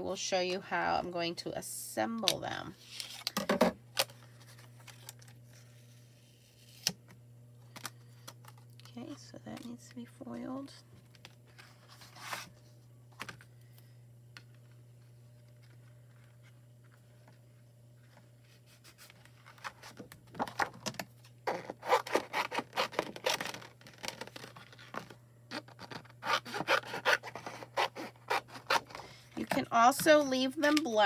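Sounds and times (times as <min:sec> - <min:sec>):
low steady hum: 0:00.0 - 0:31.0
paper rubbing and scraping: 0:25.6 - 0:29.0.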